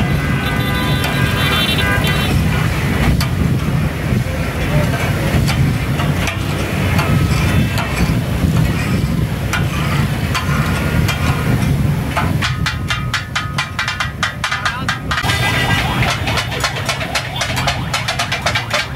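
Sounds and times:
metal spatulas clanging on griddle: 0:04.8 - 0:08.9, 0:12.1 - 0:15.3.

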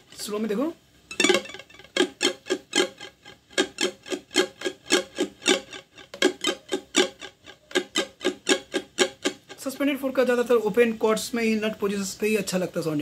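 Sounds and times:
ukulele strumming: 0:00.0 - 0:10.4.

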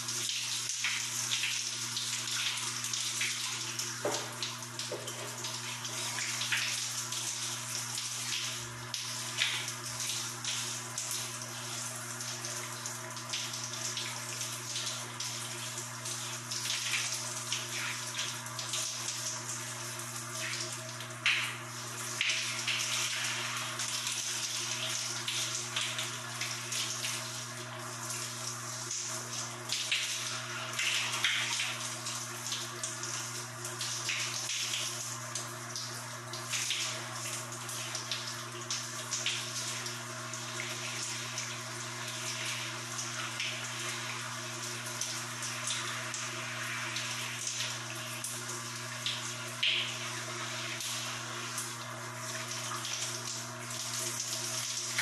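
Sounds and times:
shower water spraying and splashing: 0:00.0 - 0:55.0.

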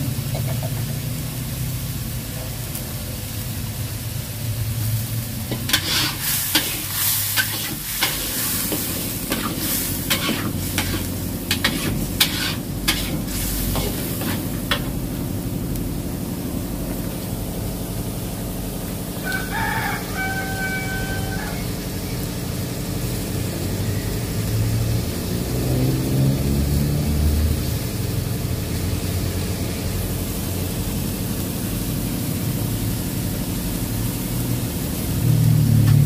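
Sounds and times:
metal spatula scraping a wok: 0:05.5 - 0:14.9.

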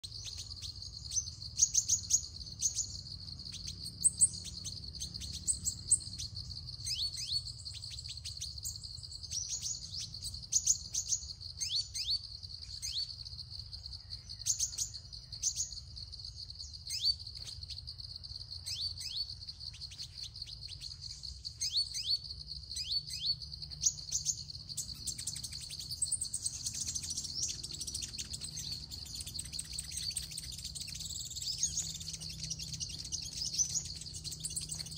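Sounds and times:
bird chirping: 0:00.0 - 0:34.9
insect buzz: 0:00.0 - 0:34.9.

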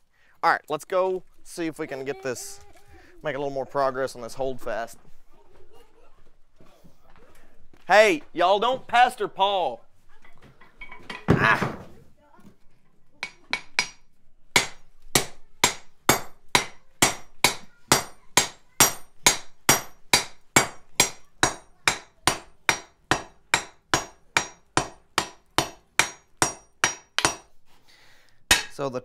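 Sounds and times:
hammer striking metal on anvil: 0:13.2 - 0:14.0, 0:14.6 - 0:27.5, 0:28.5 - 0:28.8.

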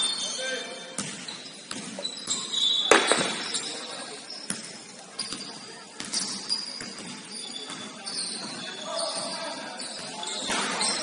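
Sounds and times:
shoes squeaking on court: 0:00.0 - 0:11.0
ball bouncing on court: 0:01.0 - 0:03.8, 0:04.4 - 0:09.3.

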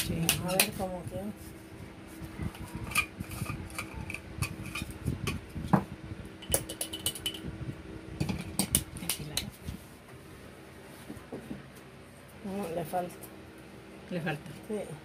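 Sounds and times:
glass jar clicking and knocking: 0:06.4 - 0:07.4.

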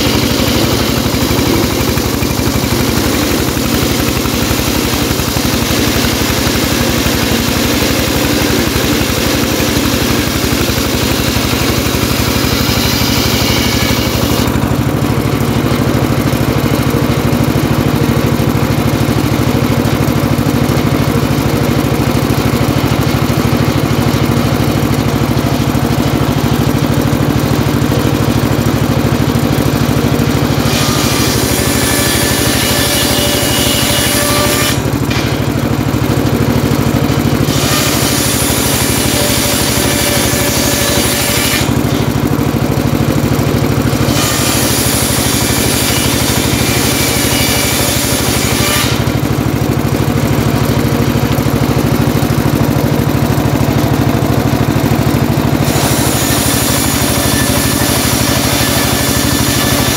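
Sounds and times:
saw blade cutting timber: 0:00.0 - 0:17.4, 0:29.5 - 0:35.6, 0:36.6 - 0:49.4, 0:55.0 - 0:59.9
circular saw engine running: 0:00.0 - 0:59.9.

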